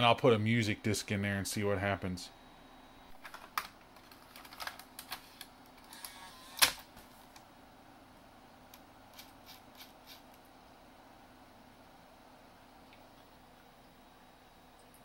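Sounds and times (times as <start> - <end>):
disc tray motor whine: 0.4 - 3.2, 5.2 - 7.0.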